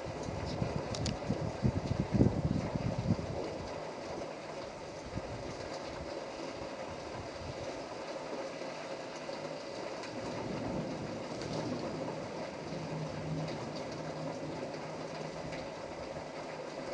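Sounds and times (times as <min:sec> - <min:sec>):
low thunder rumbling: 0:00.0 - 0:03.9, 0:10.0 - 0:16.9
steady rain: 0:00.0 - 0:16.9.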